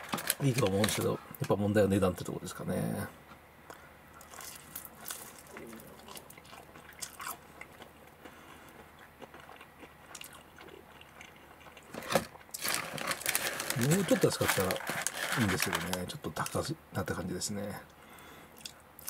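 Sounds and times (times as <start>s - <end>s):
person chewing crunchy food: 3.7s - 14.7s, 18.5s - 18.8s.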